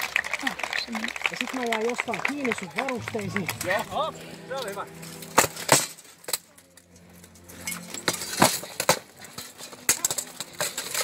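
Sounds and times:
armour and weapons clashing: 7.5 - 11.0.

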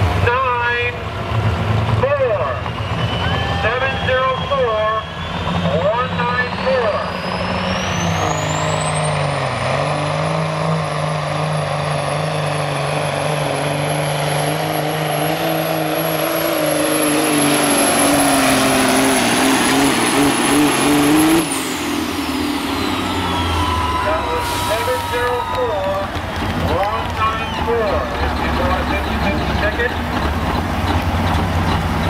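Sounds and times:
truck diesel engine at full load: 0.0 - 32.0
turbocharger whistle: 2.5 - 9.6, 20.4 - 29.9.

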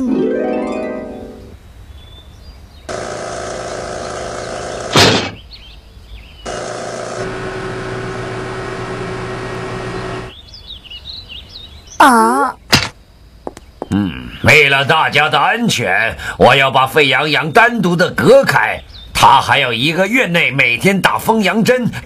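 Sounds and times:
steady buzzing hum: 6.5 - 10.4.

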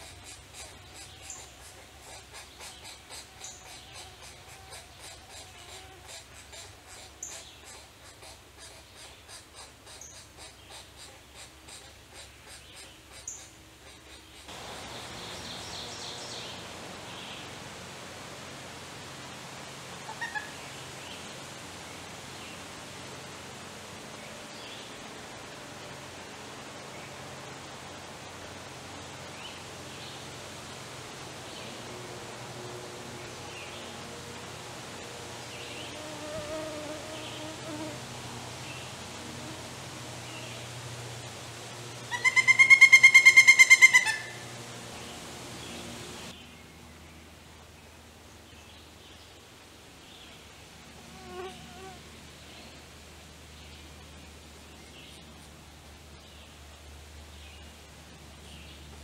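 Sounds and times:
woodpecker nestlings begging calls: 0.0 - 14.5
steady outdoor hiss: 0.0 - 59.0
flying insect buzzing: 34.1 - 41.2, 51.1 - 52.0.

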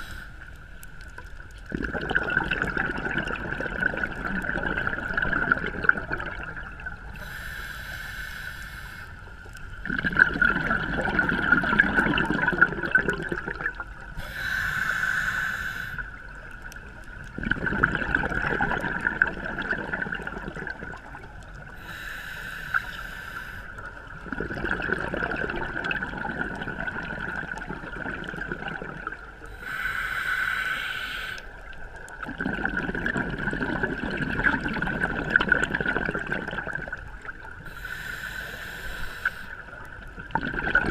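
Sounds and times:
exhaled bubbles rushing: 1.3 - 7.1, 9.8 - 14.1, 16.5 - 21.6, 24.1 - 29.3, 32.0 - 37.6, 39.9 - 40.9
diver breathing through regulator: 7.2 - 9.2, 14.2 - 16.2, 21.8 - 23.8, 29.5 - 31.6, 37.7 - 39.6.

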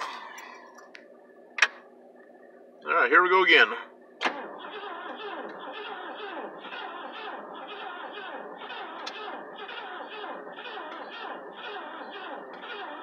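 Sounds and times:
engine cranking on starter: 4.2 - 13.0.

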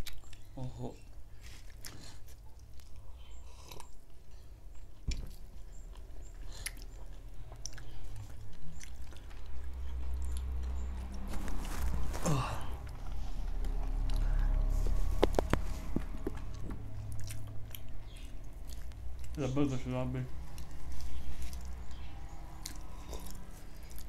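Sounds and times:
chewing and biting: 0.0 - 19.5, 20.4 - 24.0.

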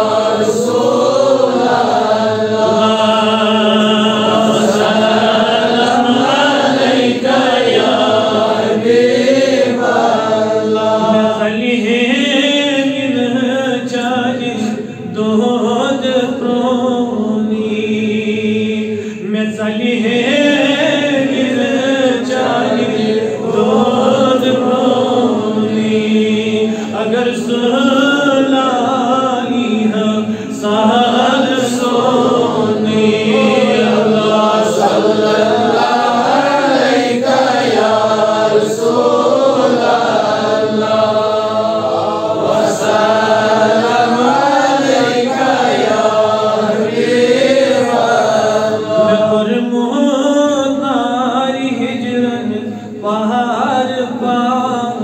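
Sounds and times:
man chanting melodically: 0.0 - 55.0.

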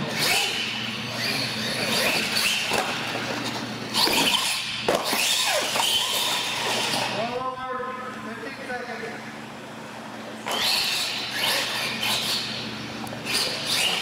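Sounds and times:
toy truck electric motors whining: 0.0 - 7.2, 10.4 - 12.6, 13.2 - 14.0.

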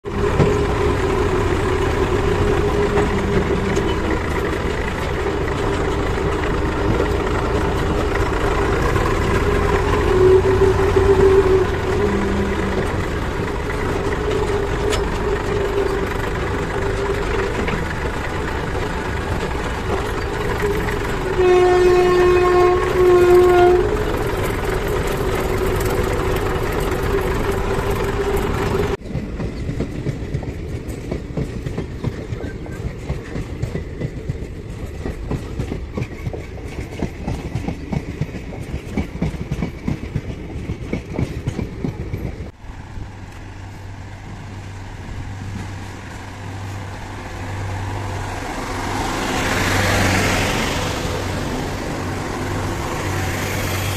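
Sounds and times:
tractor diesel engine running: 0.1 - 29.0
horn blasts: 9.4 - 13.0, 21.2 - 24.4.

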